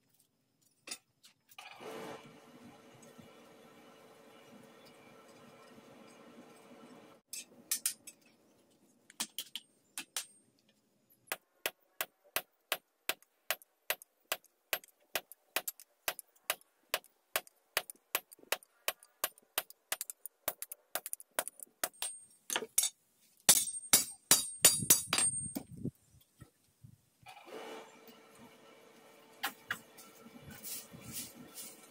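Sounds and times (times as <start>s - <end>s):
hammer striking steel on anvil: 23.5s - 25.6s.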